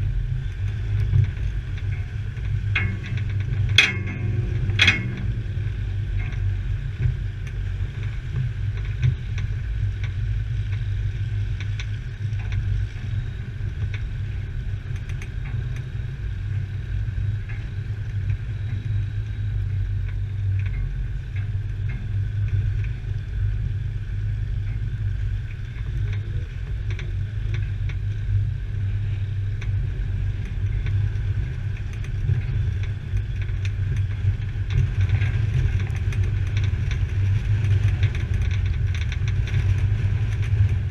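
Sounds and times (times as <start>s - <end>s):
vehicle knocks and rattles: 0.0s - 10.9s
off-road vehicle engine running: 0.0s - 40.9s.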